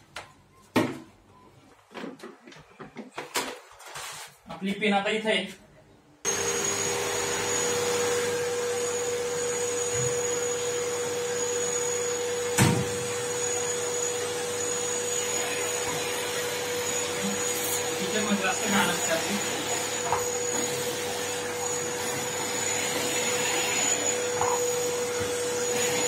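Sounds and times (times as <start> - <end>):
vacuum cleaner running: 6.2 - 26.0.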